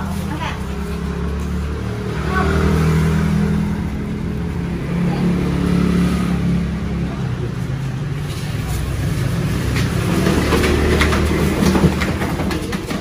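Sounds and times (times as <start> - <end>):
vehicle engine revving: 0.0 - 12.8.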